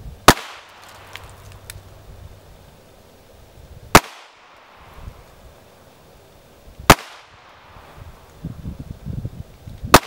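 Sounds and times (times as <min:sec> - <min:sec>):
pistol shots: 0:00.3 - 0:01.2, 0:03.9 - 0:04.4, 0:06.9 - 0:07.3.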